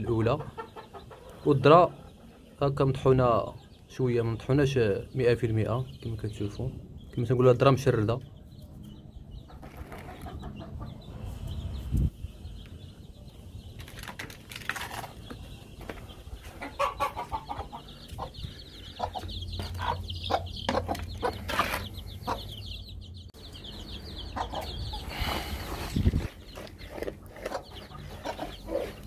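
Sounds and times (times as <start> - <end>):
hen clucking: 0.0 - 6.6, 9.3 - 11.8, 15.0 - 29.0
chicks peeping: 0.0 - 29.0.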